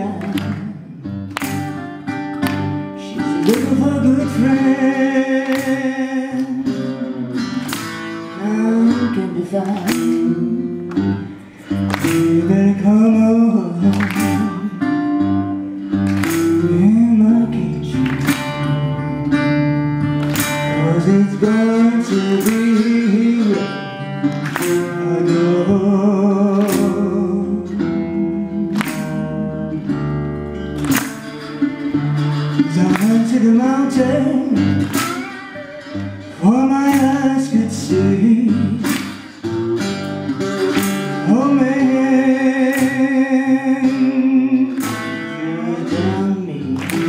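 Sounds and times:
acoustic guitars: 0:00.0 - 0:47.0
person singing: 0:02.9 - 0:15.8, 0:20.7 - 0:29.8, 0:31.6 - 0:39.1, 0:40.4 - 0:47.0.

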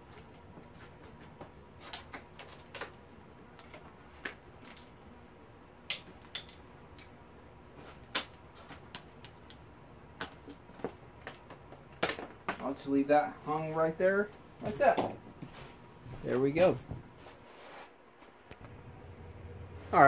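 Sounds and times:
hand tools clicking and knocking: 0:05.9 - 0:07.1.

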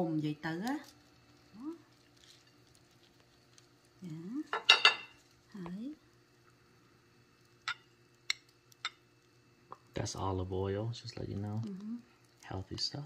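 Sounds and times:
dishes and utensils clinking: 0:04.5 - 0:05.2.

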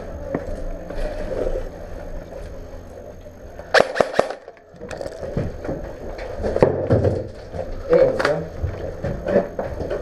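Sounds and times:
sharp cracks: 0:03.7 - 0:05.2.

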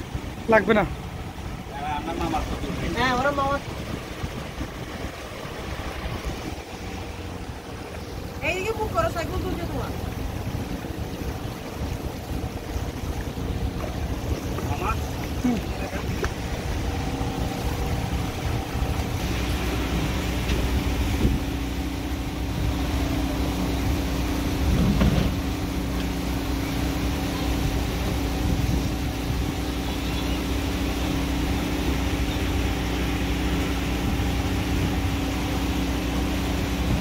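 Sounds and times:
motorboat engine humming: 0:00.0 - 0:37.0
rumbling water: 0:00.0 - 0:37.0
wind noise: 0:02.4 - 0:08.3, 0:10.2 - 0:23.0, 0:27.5 - 0:29.8.

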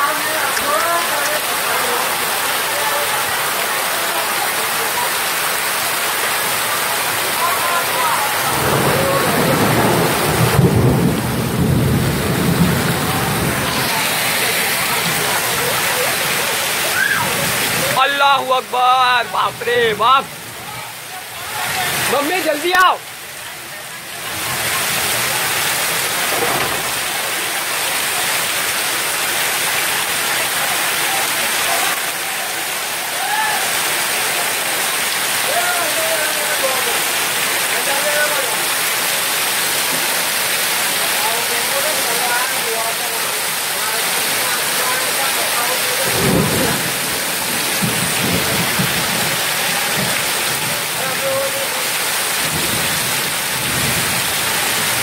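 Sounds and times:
floodwater rushing: 0:00.0 - 0:55.0.

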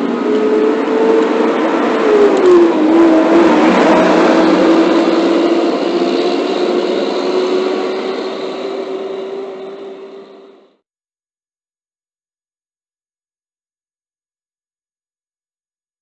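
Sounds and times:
heavy truck diesel engines passing: 0:00.0 - 0:10.8.

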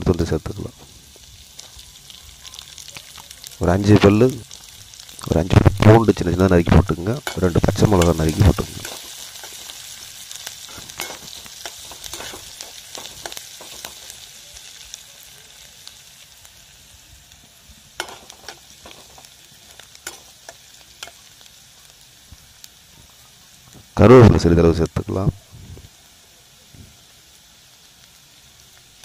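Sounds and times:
food sizzling in hot oil: 0:00.0 - 0:29.0
metal spatula scraping pan: 0:10.6 - 0:14.2.

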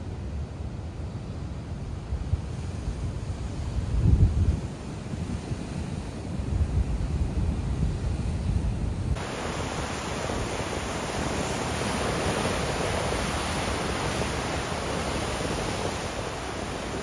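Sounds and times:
wind rumble on microphone: 0:00.0 - 0:17.0
ocean surf breaking over rocks: 0:09.2 - 0:17.0.

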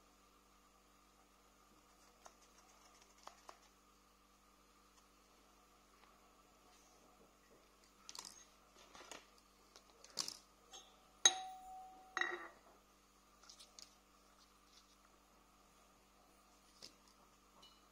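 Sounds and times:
sharp ringing metallic clink: 0:10.7 - 0:12.6
metal tools knocking on tiles: 0:11.3 - 0:12.6.

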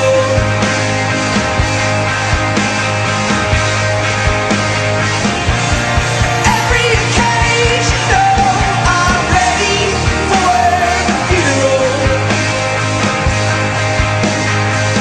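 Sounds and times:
rock song with sung vocal: 0:06.1 - 0:13.5.

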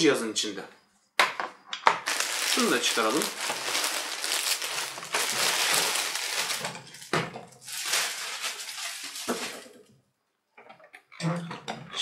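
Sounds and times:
plastic wrapping crinkling: 0:01.9 - 0:09.9.

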